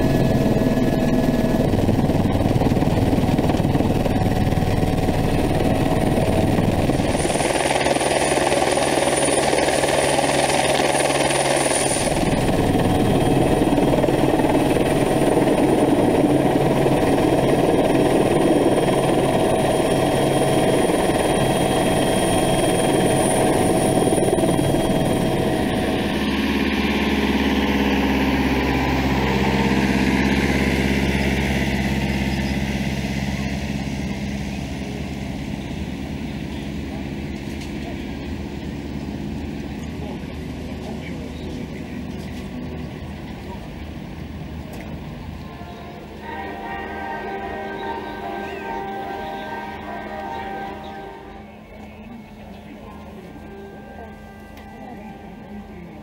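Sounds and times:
helicopter cabin drone: 0.0 - 56.0
turbine whine: 0.0 - 56.0
vehicle engine idling: 23.5 - 46.2.

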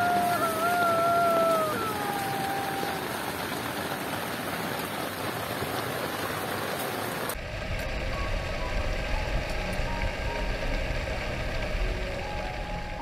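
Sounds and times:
heavy rain on tent fabric: 0.0 - 13.0
deeper rumble: 7.4 - 13.0.

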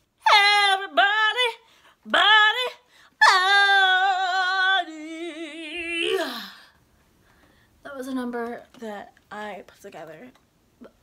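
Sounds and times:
woman singing a cappella: 0.1 - 6.7.

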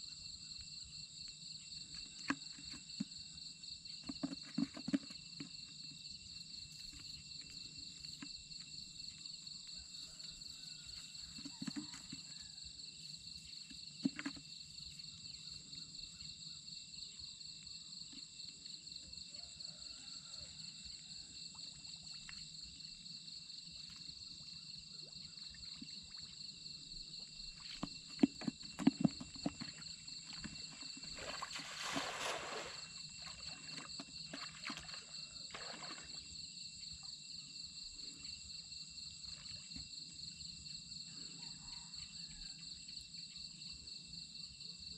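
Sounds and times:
insects chirping: 0.0 - 44.9
pond water splashing: 25.0 - 36.4.

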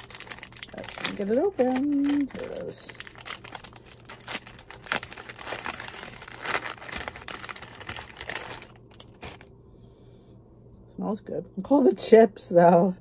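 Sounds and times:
plastic wrapper crinkling: 0.0 - 9.5.

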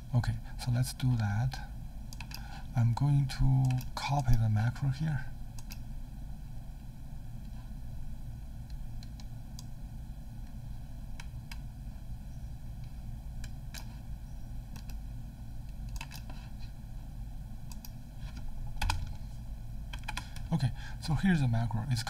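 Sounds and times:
low background hum: 0.0 - 22.0
mouse and keyboard clicks: 13.4 - 14.0, 15.8 - 16.4.

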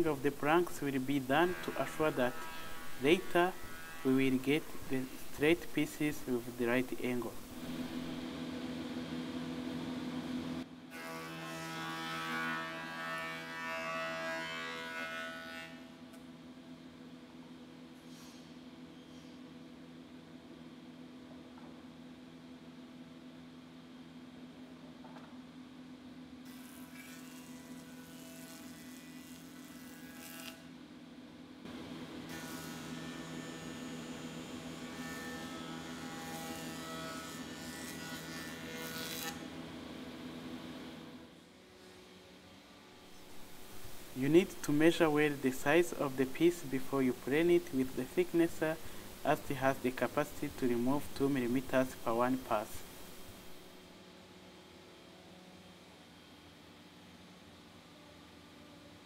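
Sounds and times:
planer cutting wood: 1.2 - 5.1, 31.7 - 39.5.

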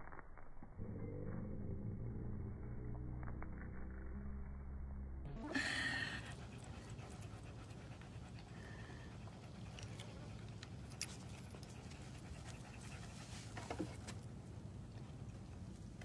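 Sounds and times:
dog panting: 5.5 - 14.2.

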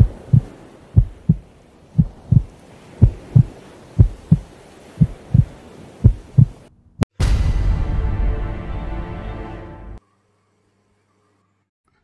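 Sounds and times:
heartbeat thumps: 0.0 - 6.6.

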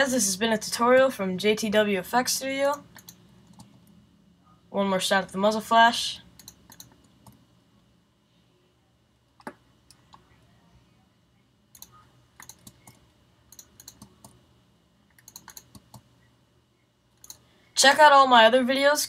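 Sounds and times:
keyboard and mouse clicking: 2.7 - 4.0, 6.4 - 7.4, 11.7 - 14.4, 15.1 - 16.1, 17.2 - 17.4.

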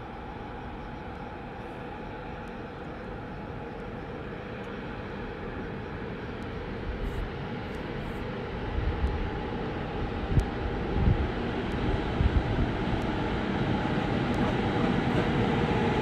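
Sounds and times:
diesel locomotive running: 0.0 - 16.0
wind buffeting microphone: 8.4 - 16.0.

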